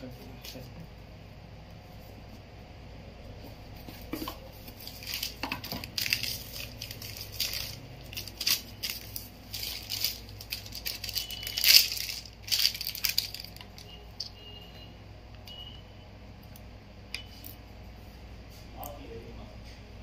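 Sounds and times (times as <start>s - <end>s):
packaging crinkling: 4.7s - 13.8s.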